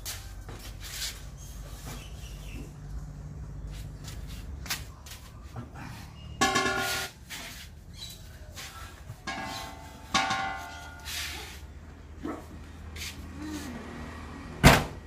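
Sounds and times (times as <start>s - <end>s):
metal cylinders ringing clangs: 6.3s - 7.2s, 9.2s - 11.1s
steel gas cylinders knocking: 6.4s - 7.2s, 9.2s - 11.1s.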